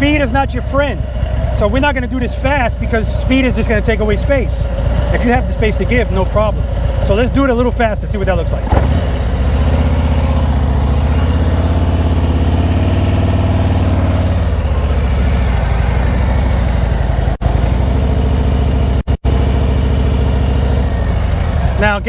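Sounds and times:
motorcycle engine at low speed: 0.0 - 22.0.

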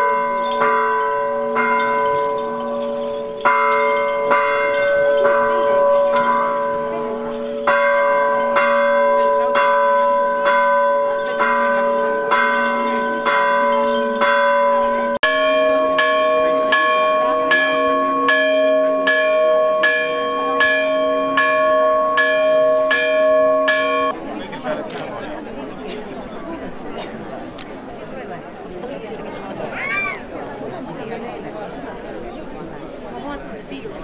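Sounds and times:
church bell ringing: 0.0 - 24.2.

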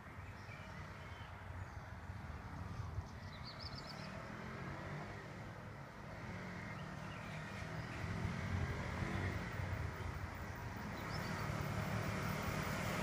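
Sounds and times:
bird chirping: 3.1 - 4.2, 6.6 - 8.4, 10.4 - 11.9.

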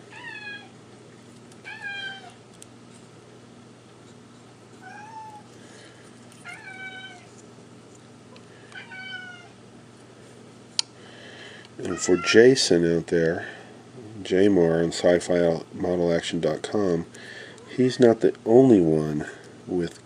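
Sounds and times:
cat meowing: 1.6 - 2.4, 4.8 - 5.5, 6.4 - 7.3, 8.8 - 9.6.

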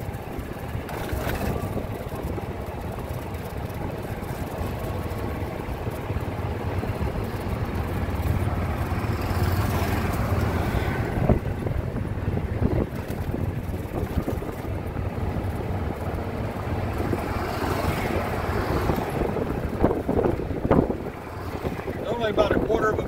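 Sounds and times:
golf cart motor and tyres rumbling: 0.0 - 23.0
passing golf cart: 0.0 - 23.0
wind on microphone: 6.7 - 23.0.

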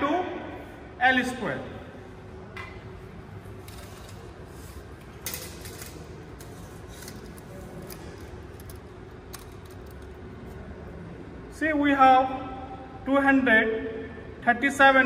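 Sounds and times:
steady background hum: 0.0 - 15.0
tape measure clicks and rattles: 5.0 - 10.2.

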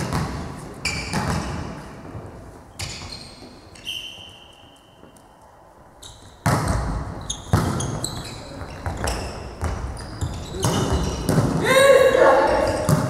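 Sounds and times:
volleyball hit echoing: 6.4 - 8.0, 10.6 - 13.0.

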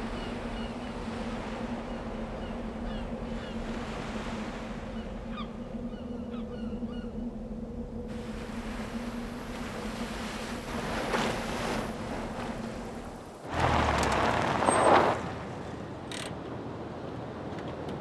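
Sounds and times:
ocean waves breaking on beach: 0.0 - 5.4, 8.1 - 16.0.

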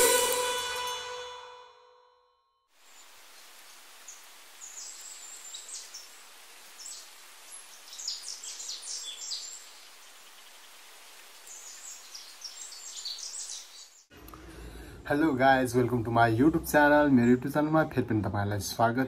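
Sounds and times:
steady background hiss: 2.8 - 18.0
birds chirping: 4.0 - 14.1.

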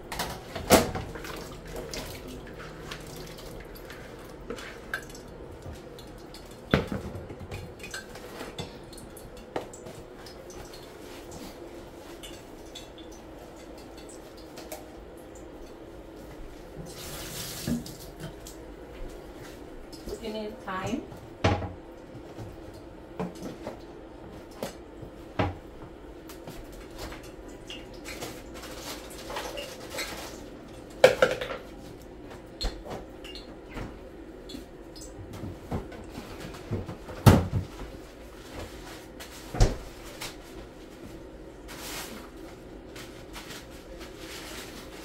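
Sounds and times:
cupboard and refrigerator doors: 35.3 - 38.0, 38.7 - 40.2.

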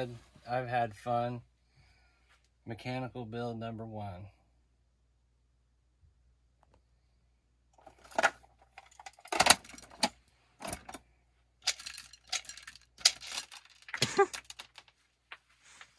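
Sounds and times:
small objects clattering and jingling: 7.8 - 11.0, 11.6 - 15.0.

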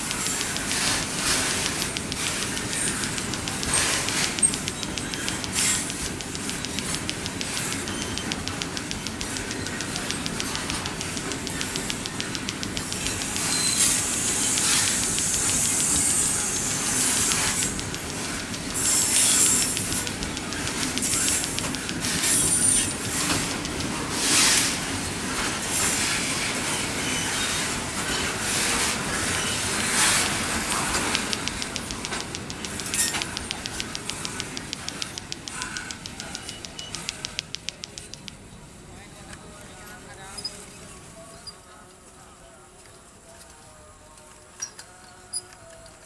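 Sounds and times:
wheels ticking on rails: 0.0 - 38.4.

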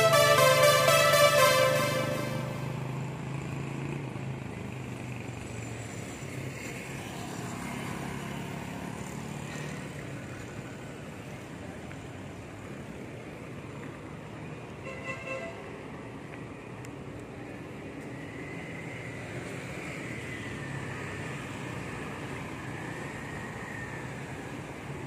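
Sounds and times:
car horn toot: 0.0 - 2.9
road noise: 0.0 - 25.0.

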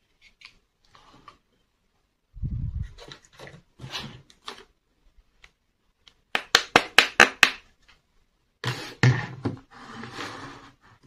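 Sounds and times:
plastic toy scraping across table: 8.6 - 11.0.

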